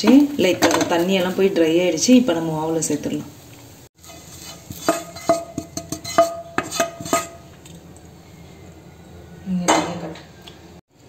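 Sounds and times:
metal spoon scraping metal pan: 4.0s - 7.5s.

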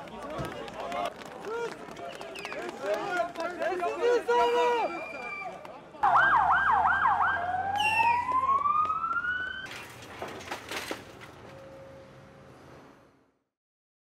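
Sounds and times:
outdoor noise: 0.0s - 13.6s
ambulance siren: 6.0s - 9.7s.

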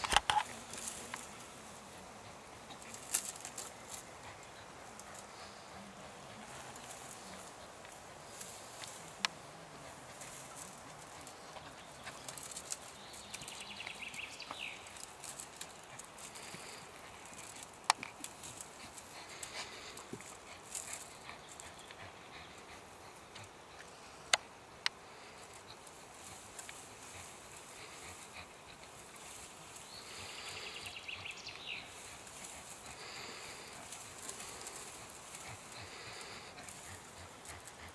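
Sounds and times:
bird singing: 10.6s - 17.6s, 27.7s - 35.7s.

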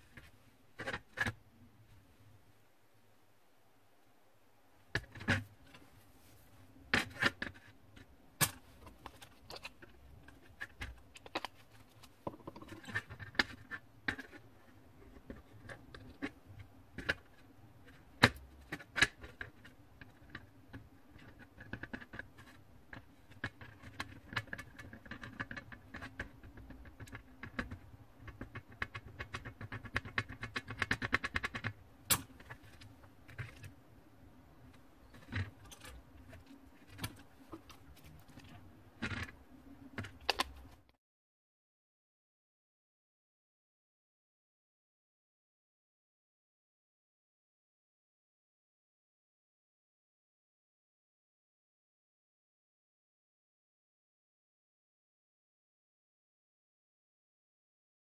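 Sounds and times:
rapid small clicks and crackle: 7.1s - 33.8s.

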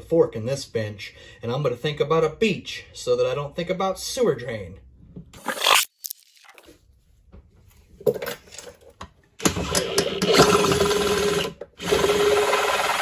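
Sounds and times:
drill boring through metal: 9.4s - 13.0s.

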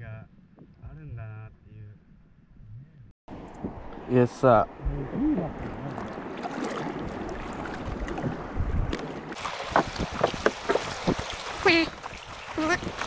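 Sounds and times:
wind on microphone: 0.4s - 13.0s
paddle splashing in water: 5.6s - 13.0s.

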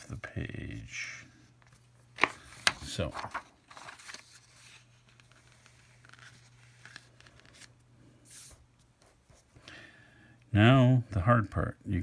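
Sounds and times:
low steady hum: 0.0s - 12.0s
paper rustling and scraping: 1.6s - 9.5s.

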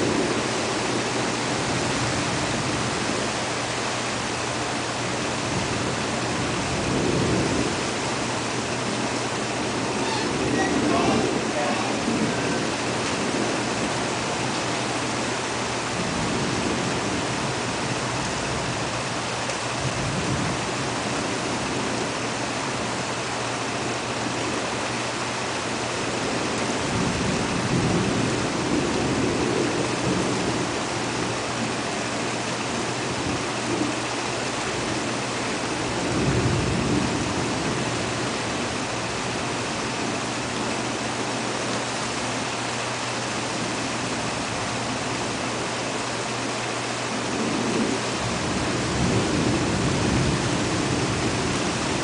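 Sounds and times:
steady rain falling: 0.0s - 52.0s
thunder rolling: 5.4s - 19.2s.

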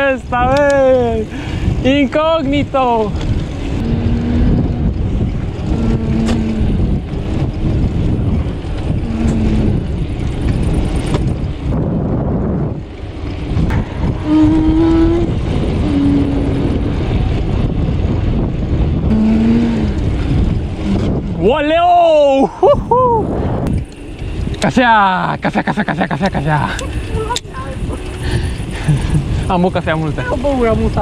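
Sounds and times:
wind rushing over microphone: 0.0s - 31.0s
short steady tones: 13.7s - 17.4s.

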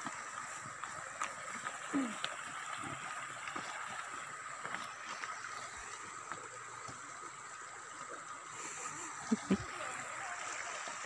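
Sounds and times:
footsteps on stones: 0.0s - 7.0s
stream flowing over rocks: 0.0s - 11.0s.

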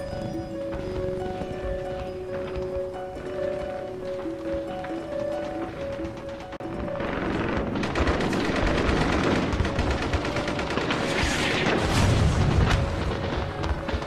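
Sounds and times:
background music: 0.0s - 14.0s
rapid gunfire: 6.6s - 14.0s.

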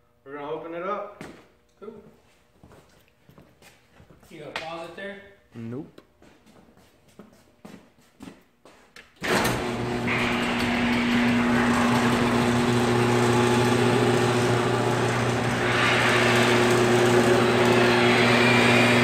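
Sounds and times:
garage door rattling: 9.2s - 18.1s
garage door motor hum: 9.2s - 19.0s.

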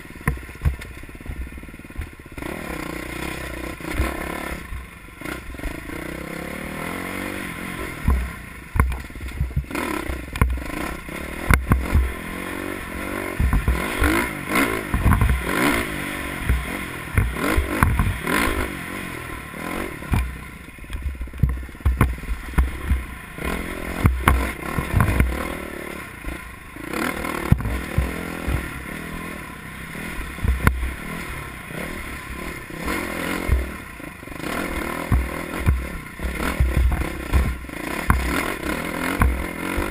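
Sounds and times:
dirt bike engine revving: 0.0s - 39.9s
sharp knocks and clatter: 0.2s - 2.5s, 8.0s - 12.2s, 13.4s - 18.6s, 20.0s - 25.5s, 27.3s - 28.8s, 33.3s - 39.9s.

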